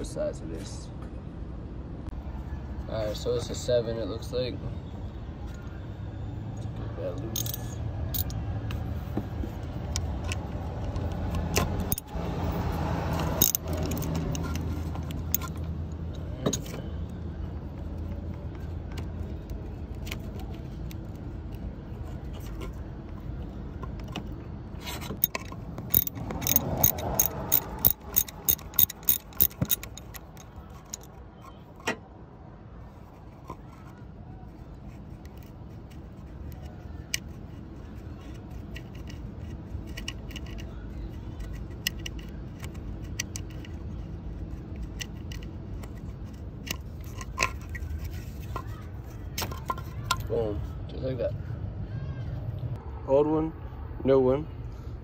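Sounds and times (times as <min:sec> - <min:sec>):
metal parts clinking: 0:07.3 - 0:08.4, 0:11.5 - 0:12.2, 0:13.1 - 0:15.7, 0:24.9 - 0:31.9, 0:38.5 - 0:40.8
socket wrench clicks: 0:13.2 - 0:15.6, 0:25.2 - 0:31.1.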